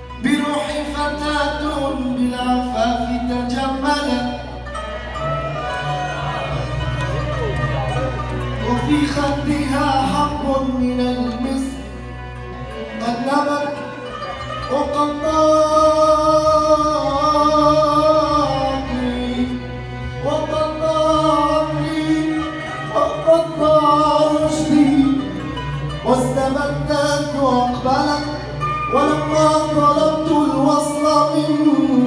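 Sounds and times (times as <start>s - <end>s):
man singing: 0.0s - 6.8s, 8.6s - 32.0s
arabic orchestra playing: 0.0s - 32.0s.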